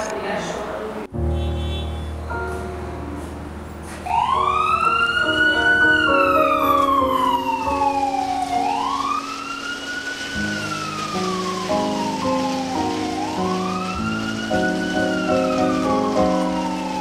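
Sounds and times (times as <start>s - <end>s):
soft piano notes: 1.0s - 17.0s
emergency siren wailing: 4.0s - 17.0s.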